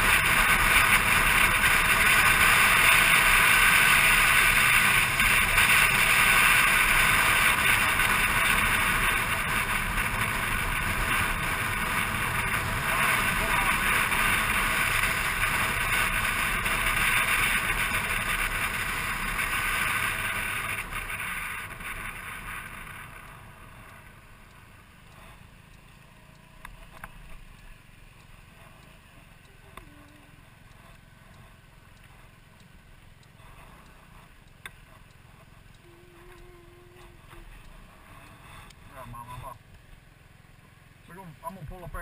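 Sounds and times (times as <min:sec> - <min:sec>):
wind rushing over camera: 0:00.0 - 0:24.3
scooter engine running: 0:00.0 - 0:41.1
faint clicks: 0:17.9 - 0:40.0.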